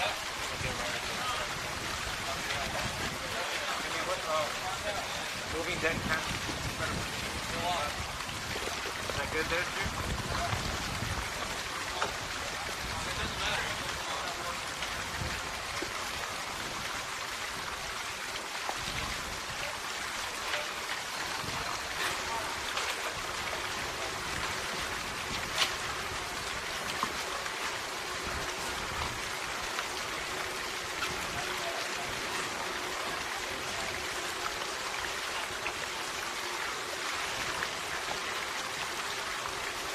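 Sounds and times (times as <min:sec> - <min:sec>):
rain-like hiss: 0:00.0 - 0:39.9.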